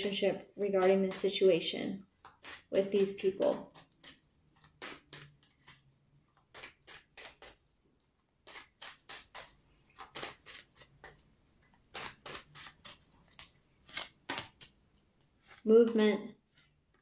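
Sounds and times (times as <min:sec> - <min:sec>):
cards shuffling swishes: 0:08.5 - 0:14.8, 0:15.4 - 0:16.8.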